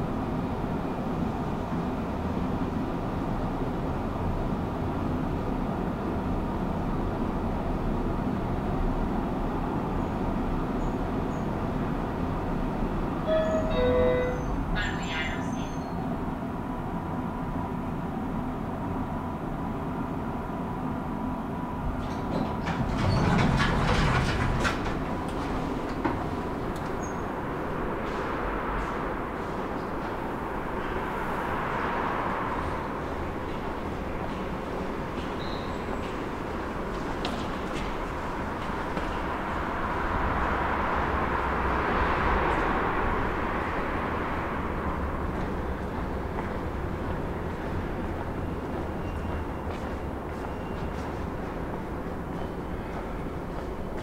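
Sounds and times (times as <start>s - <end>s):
lift humming: 11.1s - 16.0s
faint high tone: 13.3s - 16.0s
sliding doors opening: 21.8s - 30.4s.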